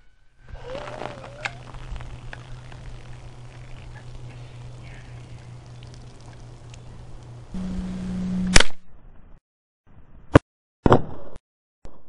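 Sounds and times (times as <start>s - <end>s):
steady low hum: 0.0s - 8.7s.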